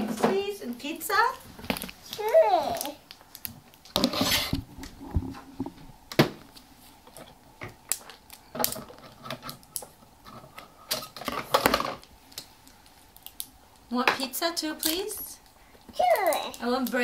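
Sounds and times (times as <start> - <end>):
plastic toys clicking and clattering: 7.9 - 12.4, 14.8 - 15.3, 15.9 - 17.0.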